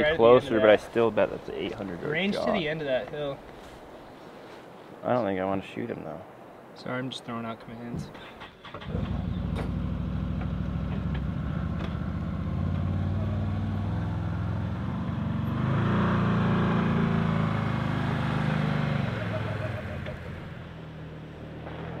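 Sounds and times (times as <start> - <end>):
utility vehicle engine driving by: 8.8 - 22.0.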